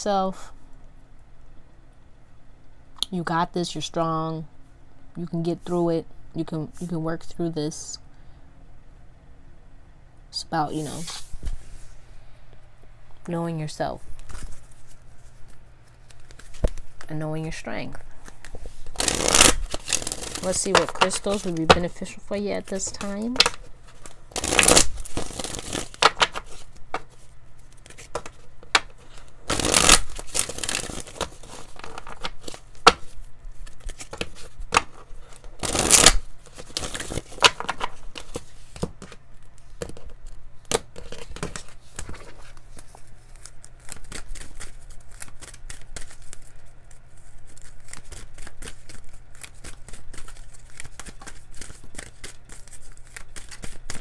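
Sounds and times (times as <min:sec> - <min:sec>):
cards being shuffled: 0:14.0 - 0:17.3, 0:18.1 - 0:54.0.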